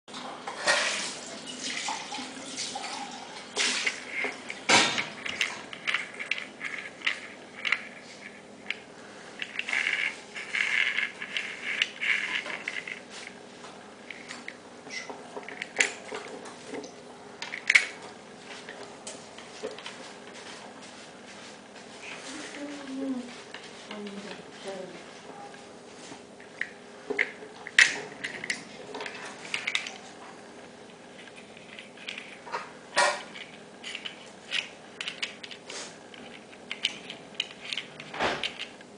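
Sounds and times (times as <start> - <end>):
metal parts clicking and rattling: 3.8 - 8.8, 9.4 - 13.3, 14.1 - 18.1, 26.4 - 30.1, 31.0 - 38.8.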